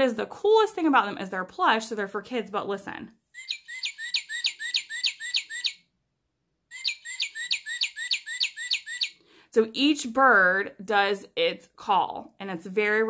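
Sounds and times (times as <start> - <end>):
toy speaker playing birdsong: 3.4 - 5.9, 6.7 - 9.2.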